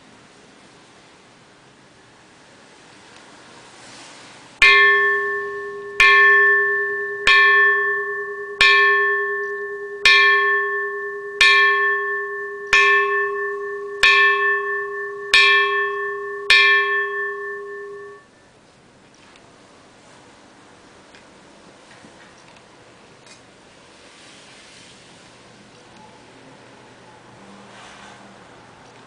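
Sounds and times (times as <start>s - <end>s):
temple bell ringing: 4.6s - 18.5s.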